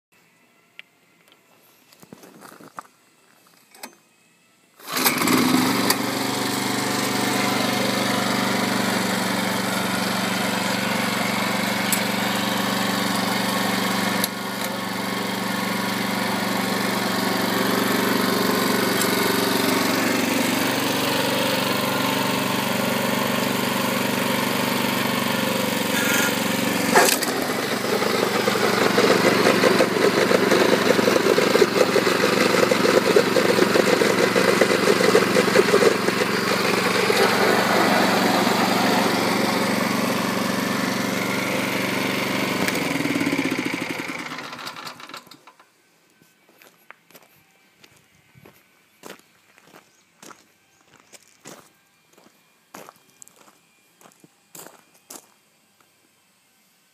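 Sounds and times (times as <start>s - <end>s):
mower engine pull-started and running: 4.7s - 46.2s.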